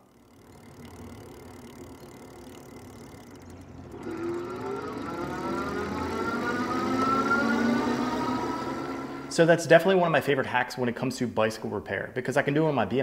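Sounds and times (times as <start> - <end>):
hub motor humming and whining: 0.0 - 9.8.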